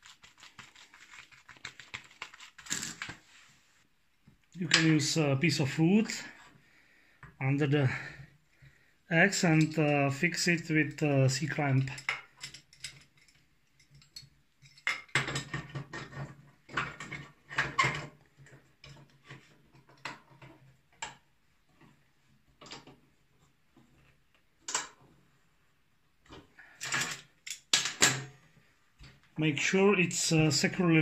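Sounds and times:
metallic clinks and scrapes: 11.9s - 14.9s.

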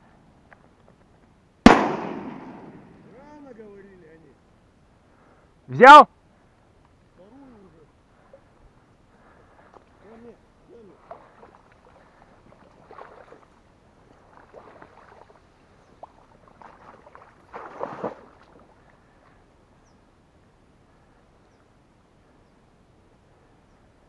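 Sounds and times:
rustling through reeds: 6.4s - 19.9s
light splashing in shallow water: 9.6s - 19.5s.

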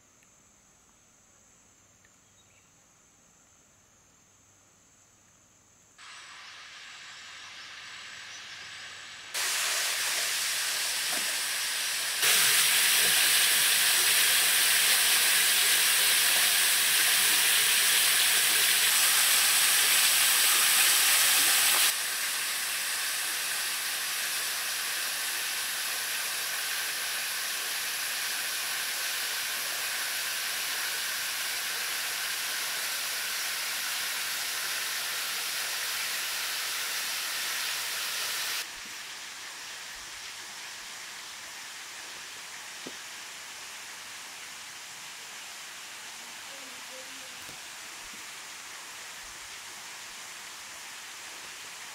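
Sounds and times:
waterfall rushing hiss: 6.0s - 51.9s.

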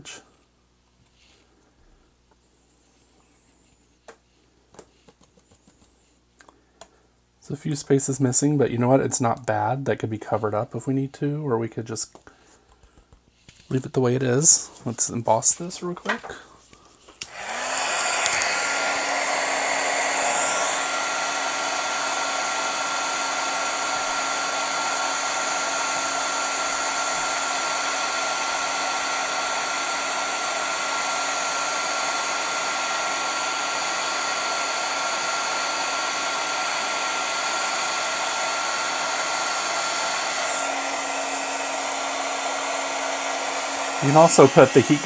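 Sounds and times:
heat gun blowing with whine: 17.1s - 45.0s.

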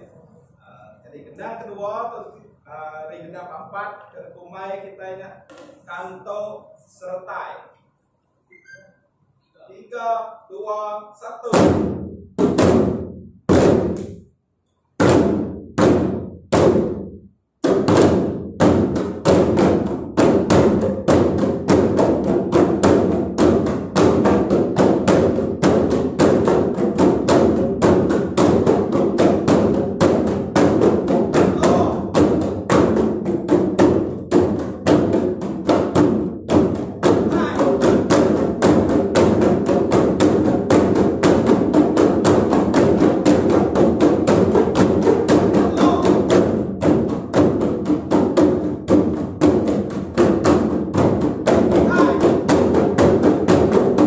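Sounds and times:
hand drums ensemble rhythm: 11.5s - 14.2s, 15.0s - 54.0s.

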